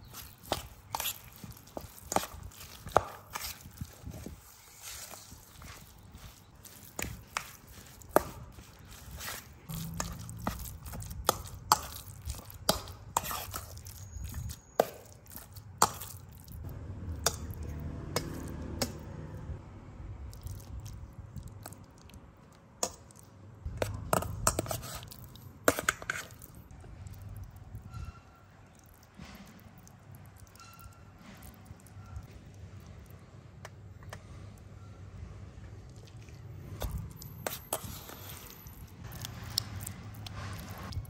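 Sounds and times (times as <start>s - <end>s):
low rumble: 9.6s - 11.1s.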